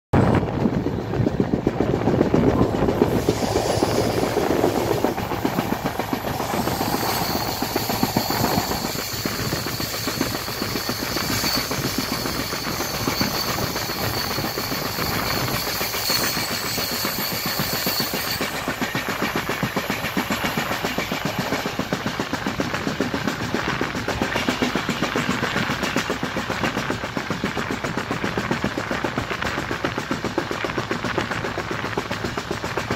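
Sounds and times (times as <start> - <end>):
high steady whine: 0.2 - 21.7
train wheels clattering over track: 0.2 - 32.9.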